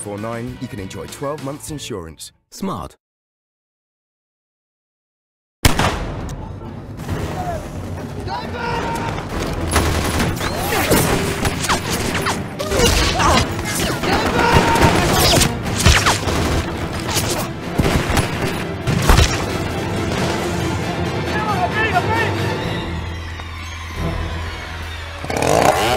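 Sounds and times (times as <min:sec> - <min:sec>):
rapid gunfire: 0:09.7 - 0:19.5.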